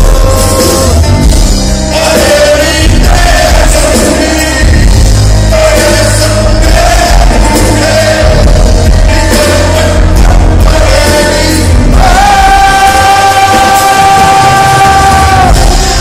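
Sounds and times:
live rock band playing: 0:00.0 - 0:16.0
man singing: 0:00.0 - 0:16.0.

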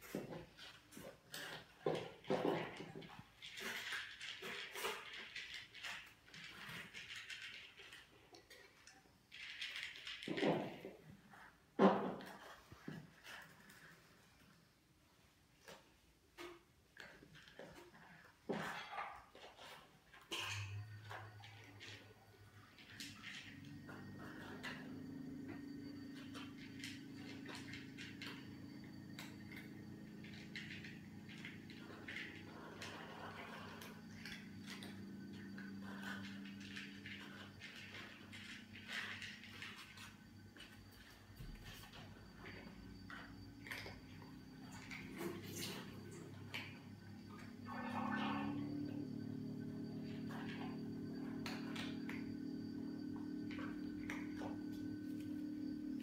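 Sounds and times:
cats crunching dry kibble: 0:00.0 - 0:11.4, 0:17.0 - 0:47.5, 0:49.7 - 0:56.0
low hum: 0:20.6 - 0:56.0.

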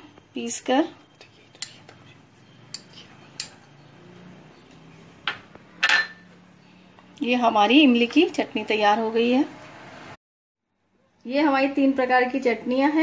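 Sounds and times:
spoon clinking against ceramic bowl: 0:02.7 - 0:03.6, 0:05.3 - 0:06.3.

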